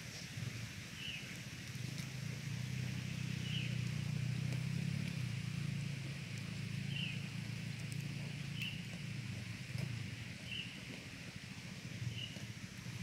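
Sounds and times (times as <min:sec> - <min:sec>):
distant engine drone: 0:00.0 - 0:13.0
bird chirping: 0:01.0 - 0:01.3, 0:03.3 - 0:03.9, 0:06.8 - 0:07.3, 0:08.2 - 0:08.9, 0:10.4 - 0:10.8, 0:12.1 - 0:12.5.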